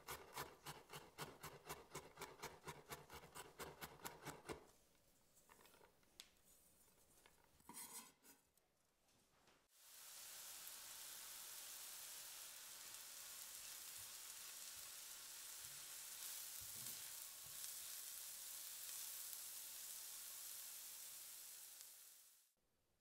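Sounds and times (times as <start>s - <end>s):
leeks sizzling in a pan: 9.8s - 22.6s.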